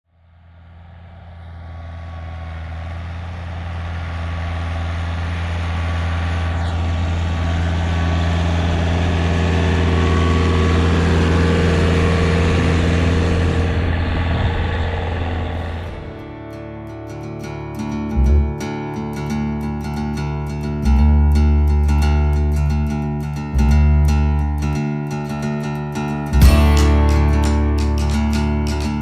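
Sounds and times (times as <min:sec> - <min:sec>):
tractor engine humming: 0:00.2 - 0:18.6, 0:26.3 - 0:29.0.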